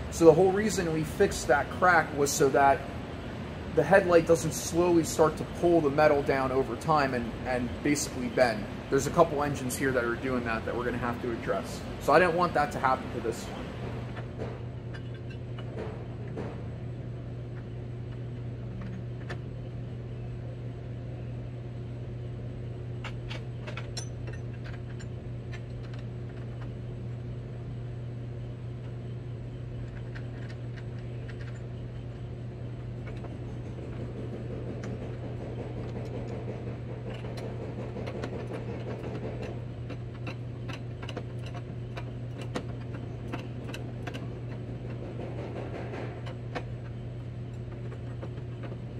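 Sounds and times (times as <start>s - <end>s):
steady low hum: 0.0s - 48.9s
wrench clicking on nuts: 34.2s - 47.0s.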